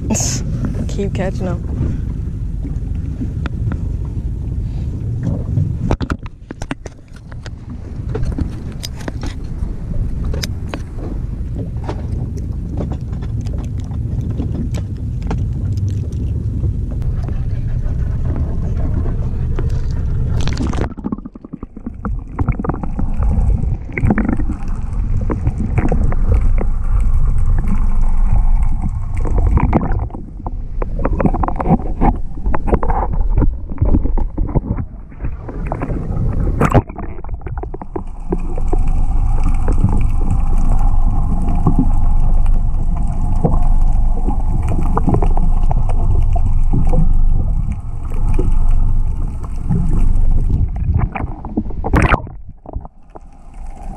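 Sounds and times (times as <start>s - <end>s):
low rumble: 0.0s - 53.9s
water sloshing and gurgling: 0.0s - 53.9s
sharp splashes and knocks: 19.7s - 53.4s.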